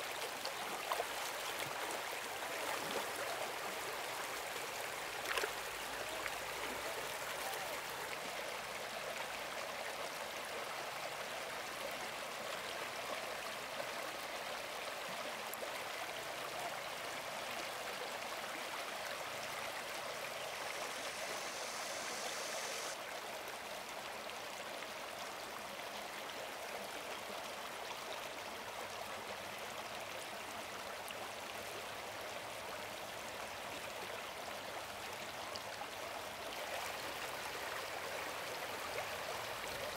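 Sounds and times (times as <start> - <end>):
stream water running: 0.0 - 39.9
higher hiss: 20.3 - 23.0.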